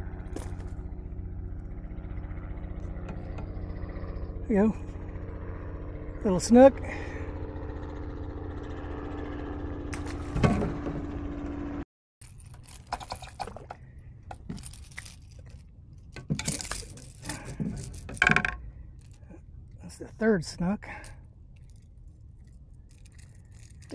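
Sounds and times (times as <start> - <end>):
steady low rumble: 0.0 - 12.9, 13.6 - 23.9
fishing reel clicks and rattles: 12.2 - 19.3, 21.5 - 23.9.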